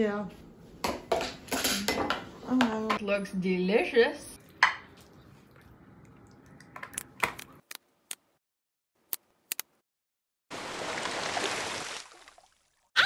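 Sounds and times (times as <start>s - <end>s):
splash sound effect: 10.5s - 12.8s.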